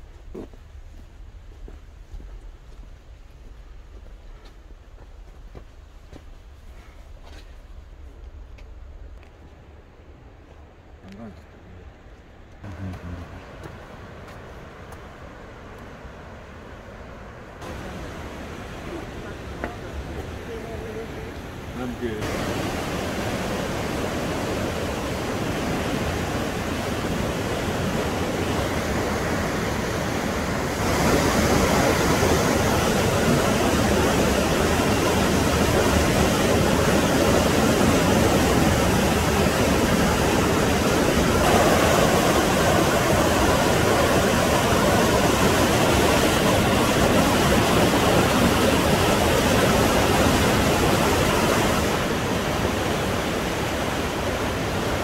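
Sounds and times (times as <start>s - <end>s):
waterfall rushing through gorge: 17.6s - 55.0s.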